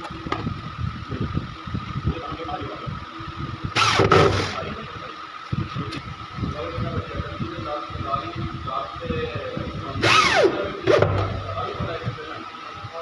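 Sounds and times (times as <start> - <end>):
low mechanical rumble: 0.0 - 13.0
electric drill whirring: 3.8 - 4.6, 10.0 - 11.2.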